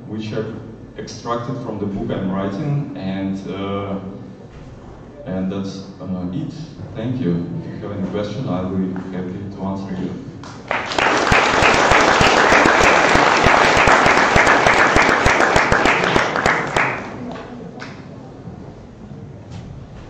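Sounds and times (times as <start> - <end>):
audience applauding: 10.5 - 18.0.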